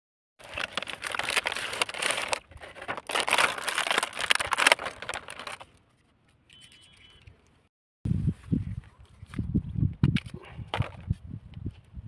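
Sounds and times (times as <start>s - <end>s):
cardboard box being opened: 0.4s - 5.6s
plastic packaging crinkling: 0.4s - 5.8s.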